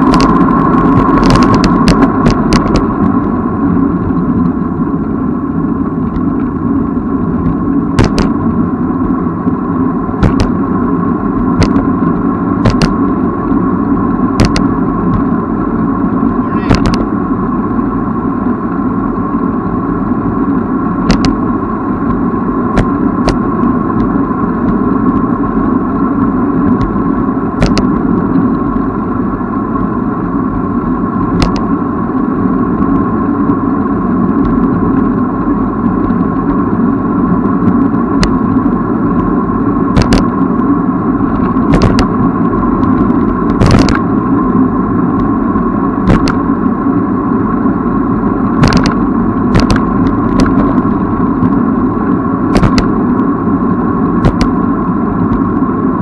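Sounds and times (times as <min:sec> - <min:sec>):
wind noise: 0:00.0 - 0:56.0
bicycle tyre noise: 0:18.4 - 0:56.0.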